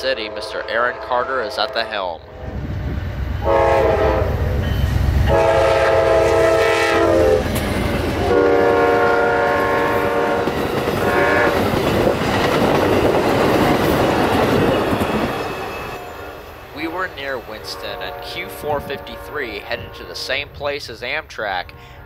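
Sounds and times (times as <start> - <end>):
train horn blasts: 0.0 - 2.8, 3.4 - 7.5, 8.2 - 11.7, 17.6 - 20.3
train cars rumbling and clacking: 0.0 - 21.8.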